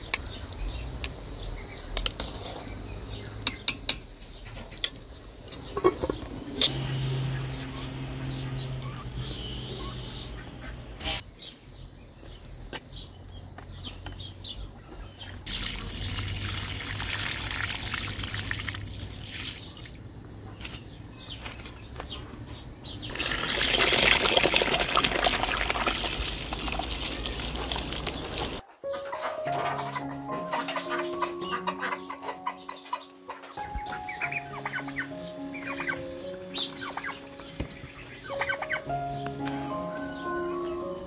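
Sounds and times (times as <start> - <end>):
water running and splashing: 15.5 - 20.1, 23.1 - 28.6.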